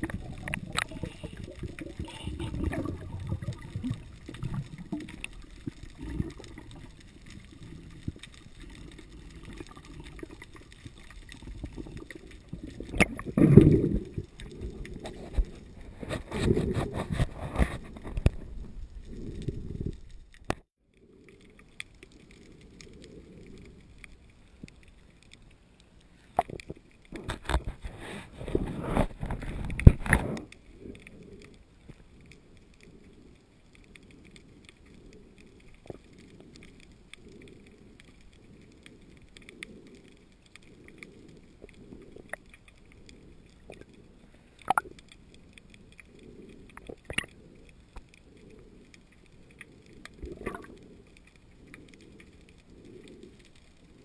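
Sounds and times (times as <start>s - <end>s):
muffled underwater rush: 0.0s - 20.4s.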